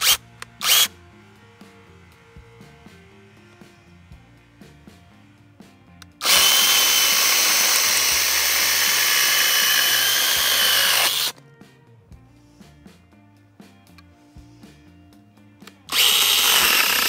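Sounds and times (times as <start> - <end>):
chainsaw cutting wood: 0.0 - 1.0, 6.2 - 11.4, 15.9 - 17.0.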